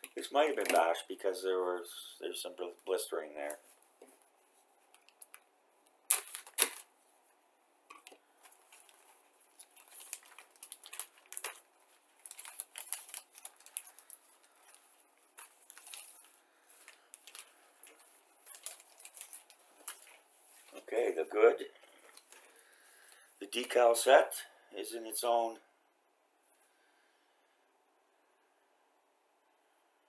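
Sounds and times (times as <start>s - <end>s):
plastic bag crinkling: 4.9s - 7.0s, 7.9s - 20.8s.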